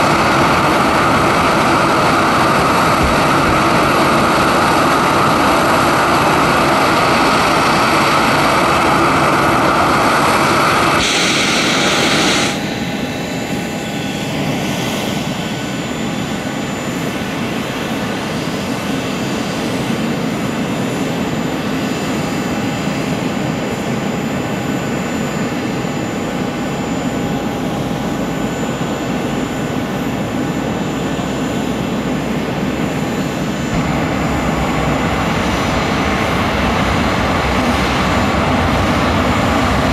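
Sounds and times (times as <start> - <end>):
jet engines running: 0.0 - 39.9
thin high whine: 10.9 - 14.2.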